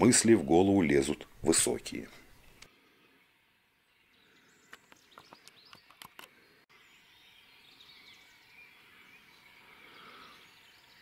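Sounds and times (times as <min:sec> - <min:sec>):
bird dry clicks: 0:04.7 - 0:06.4.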